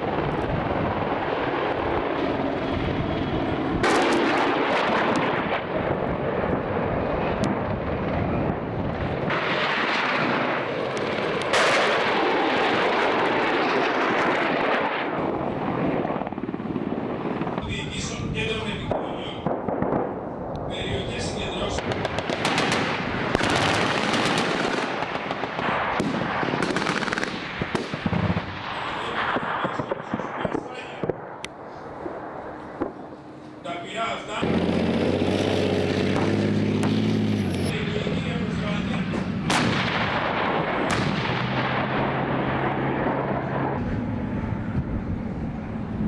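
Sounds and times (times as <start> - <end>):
explosions: 0.0 - 16.3, 18.6 - 33.2, 34.3 - 44.0
single gunshots: 3.8 - 5.3, 39.4 - 41.9
low engine hum: 34.4 - 39.9, 40.8 - 46.0
tank gun booms: 39.1 - 42.1.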